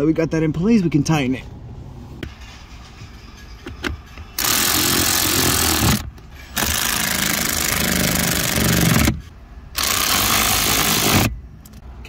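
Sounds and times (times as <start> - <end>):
electric ratchet driving screws: 4.4 - 11.3.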